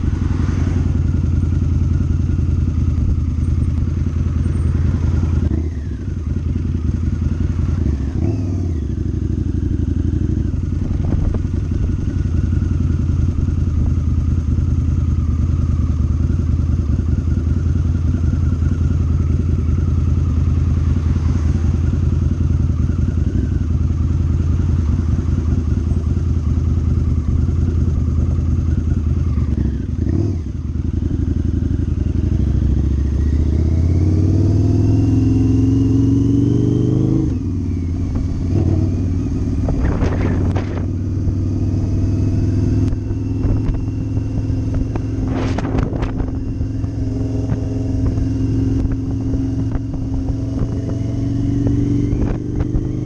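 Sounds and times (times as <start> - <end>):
motorcycle engine accelerating: 0.0 - 53.0.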